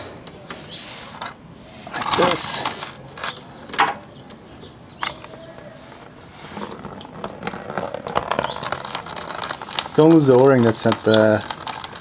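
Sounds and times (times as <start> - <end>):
coolant running into pan: 6.6 - 12.0.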